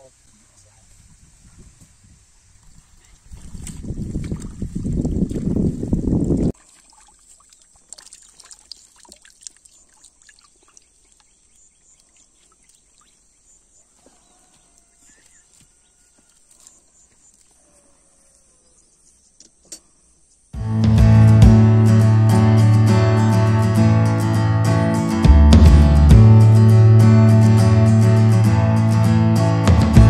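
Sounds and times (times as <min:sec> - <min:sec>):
small splashes: 0:03.0 - 0:14.2
water trickling and dripping: 0:03.2 - 0:14.0.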